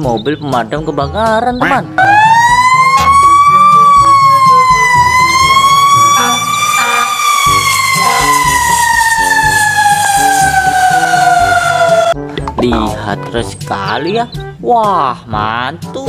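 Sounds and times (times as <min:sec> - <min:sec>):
fire truck siren wailing: 0:01.9 - 0:12.2.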